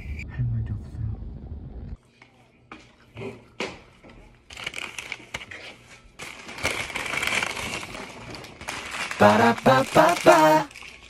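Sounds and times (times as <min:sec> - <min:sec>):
paper bag crinkling: 0:04.5 - 0:11.0.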